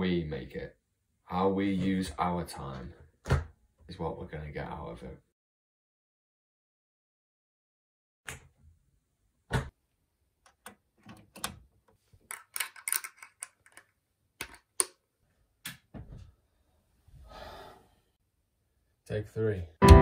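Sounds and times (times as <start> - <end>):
metal parts clicking and knocking: 12.3 - 14.6.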